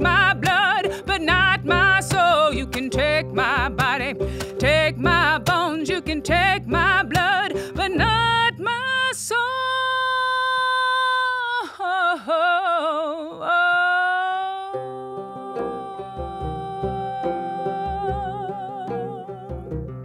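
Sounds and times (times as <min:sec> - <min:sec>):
banjo notes: 0:00.0 - 0:09.8, 0:14.4 - 0:20.0
woman singing long notes: 0:00.0 - 0:19.8.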